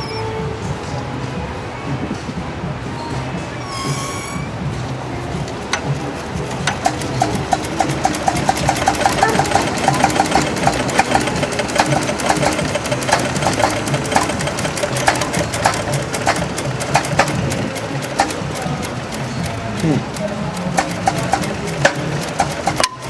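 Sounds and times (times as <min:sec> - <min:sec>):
flywheel spun by hand: 0:05.2 - 0:23.0
stationary gas engine running: 0:05.2 - 0:23.0.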